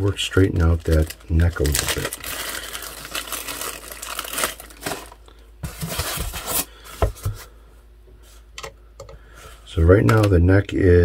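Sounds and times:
plastic bag crinkling: 0.1s - 6.7s.

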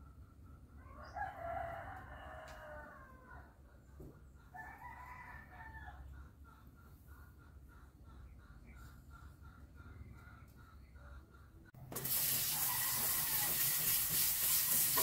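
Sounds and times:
rooster crowing: 0.8s - 3.6s, 4.6s - 6.1s, 12.5s - 13.8s.

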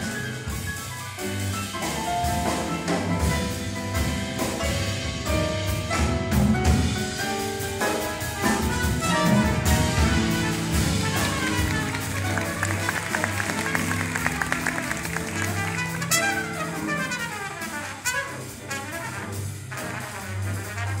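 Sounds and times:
jazz combo playing: 0.0s - 21.0s
trumpet: 5.2s - 21.0s.

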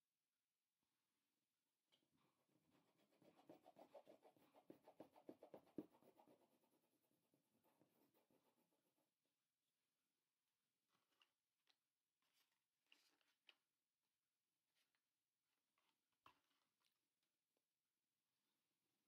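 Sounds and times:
crayon strokes on paper: 2.2s - 9.1s.

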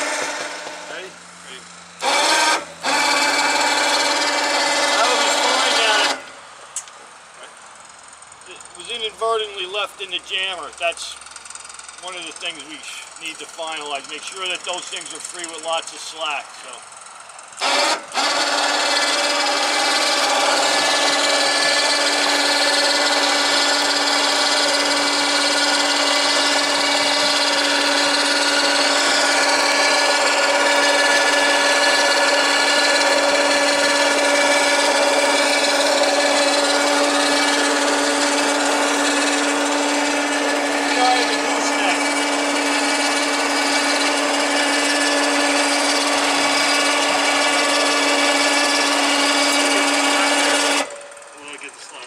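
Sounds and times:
winch motor whining: 0.0s - 52.0s.

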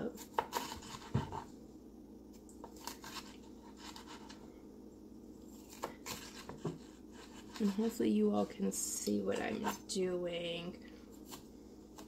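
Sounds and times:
faint steady hum: 0.0s - 12.0s
knife cutting on board: 0.2s - 1.5s, 5.7s - 7.8s.

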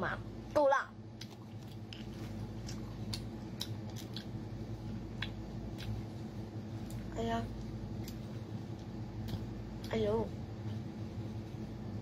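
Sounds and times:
chewing clicks and crackles: 1.2s - 4.4s.

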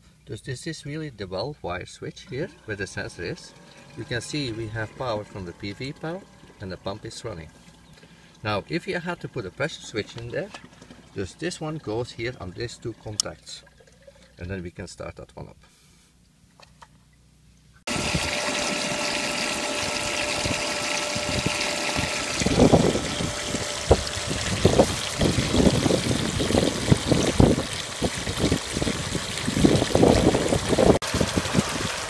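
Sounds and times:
water pouring and splashing into tub: 9.2s - 14.4s, 17.9s - 32.0s
wind buffeting microphone: 20.4s - 32.0s.

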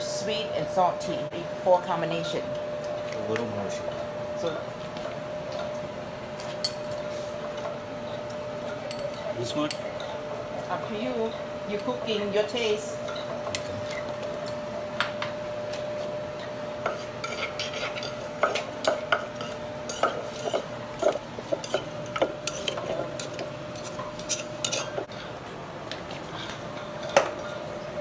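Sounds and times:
spoon scraping in a mortar: 16.9s - 18.6s, 19.2s - 25.3s.

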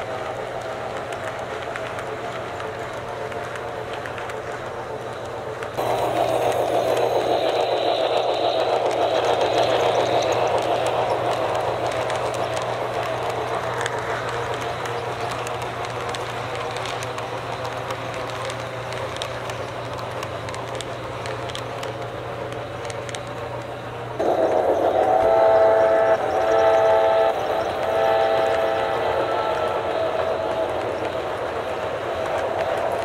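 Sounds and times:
model train running on track: 0.0s - 33.0s
steam whistle blasts: 24.2s - 30.8s.

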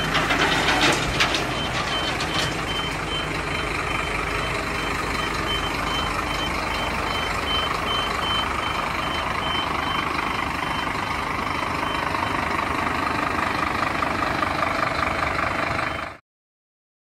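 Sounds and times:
diesel engine running: 0.0s - 16.2s
warning beeper pulsing: 1.5s - 12.4s.

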